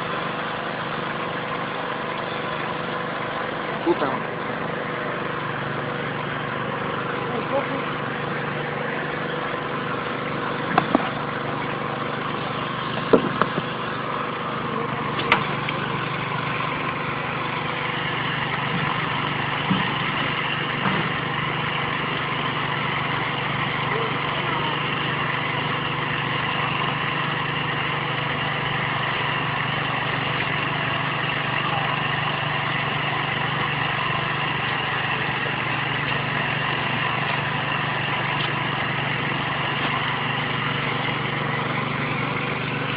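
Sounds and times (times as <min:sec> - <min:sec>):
small petrol engine running: 0:00.0 - 0:42.9
sharp knocks: 0:10.7 - 0:11.2, 0:13.0 - 0:13.7.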